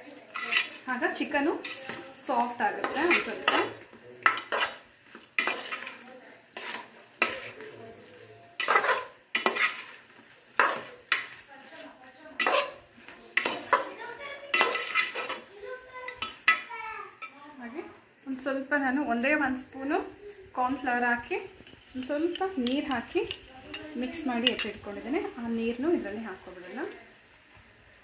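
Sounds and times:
spoon scraping metal pot: 0.2 - 13.9, 14.5 - 15.5, 21.3 - 25.0.

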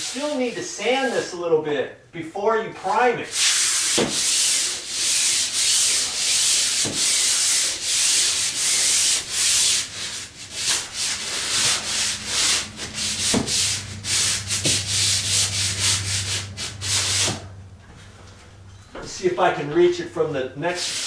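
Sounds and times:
pole sander rasping on ceiling: 0.0 - 1.2, 3.3 - 17.6, 20.7 - 21.0.

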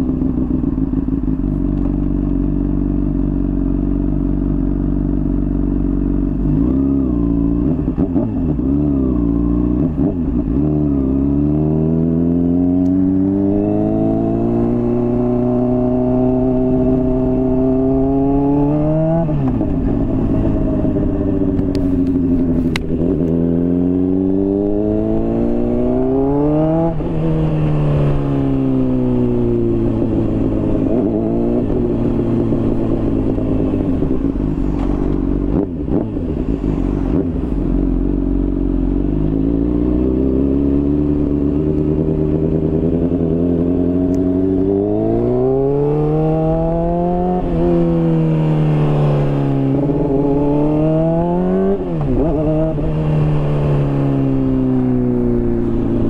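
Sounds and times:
motorcycle accelerating through gears: 0.0 - 56.0.

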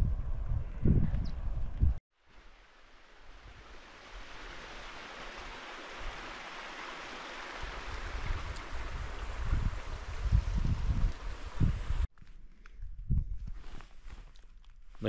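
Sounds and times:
wind buffeting microphone: 0.0 - 2.0, 7.6 - 12.1, 12.8 - 13.8
running water hissing: 2.2 - 12.1.

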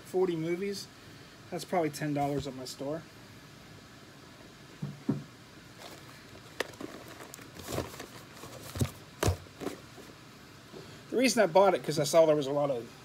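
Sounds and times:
plastic cases clacking: 5.8 - 9.8.

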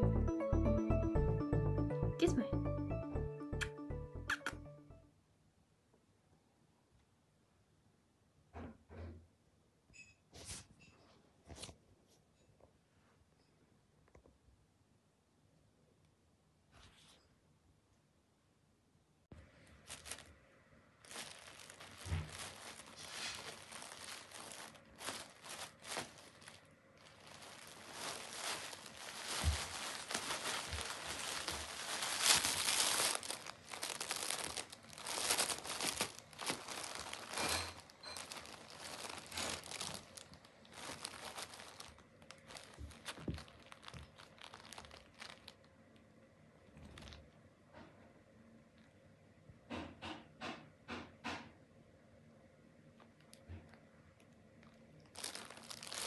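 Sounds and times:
foil and sequined fabric rustling: 19.6 - 20.4, 21.0 - 45.6, 55.1 - 56.0.

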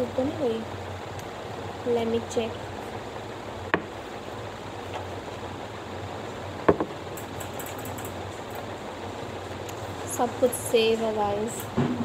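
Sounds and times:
background hiss: 0.0 - 12.0.

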